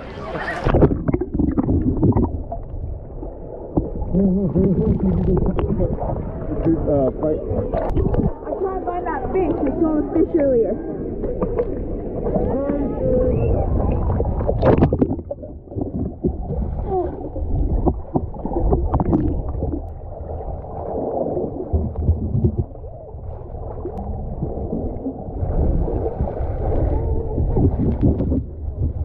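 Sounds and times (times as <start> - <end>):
underwater gurgling: 0.0 - 29.0
underwater rumble: 0.0 - 29.0
water splash: 0.2 - 6.8, 7.5 - 8.7, 11.2 - 29.0
clicks and pops: 14.4 - 16.6.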